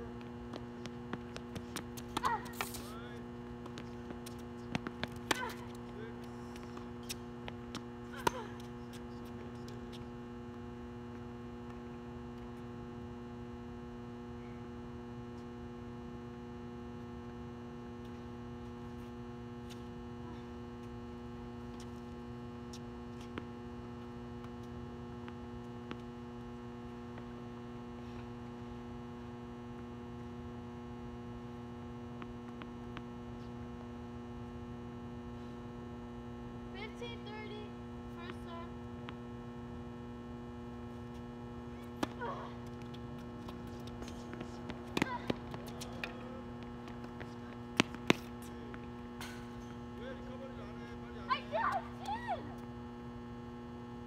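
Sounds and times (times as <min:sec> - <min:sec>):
electrical mains hum: 0:00.0 - 0:54.0
tennis racket striking ball: 0:03.6 - 0:05.7, 0:42.8 - 0:49.7.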